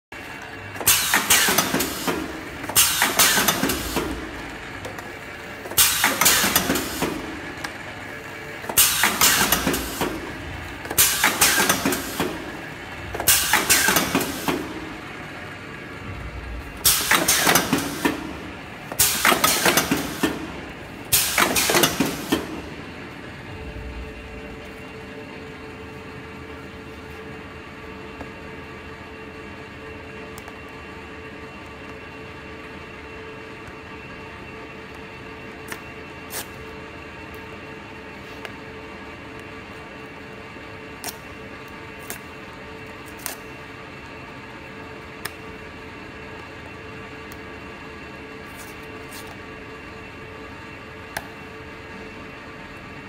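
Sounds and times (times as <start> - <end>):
packaging machine air hiss and clatter: 0.7 - 15.7, 16.7 - 23.0, 35.6 - 37.5, 40.9 - 43.6, 48.3 - 49.5
steady low hum: 6.7 - 53.0.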